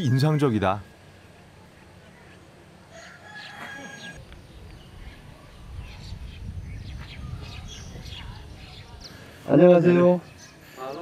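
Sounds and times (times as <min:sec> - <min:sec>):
small birds chirping: 0:01.1 - 0:11.0
rooster crowing: 0:02.9 - 0:04.2.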